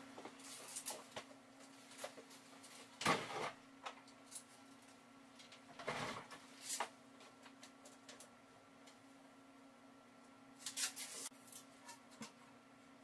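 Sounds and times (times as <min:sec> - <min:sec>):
steady low hum: 0:00.0 - 0:13.0
knocks and scrapes of carpentry: 0:05.7 - 0:07.4.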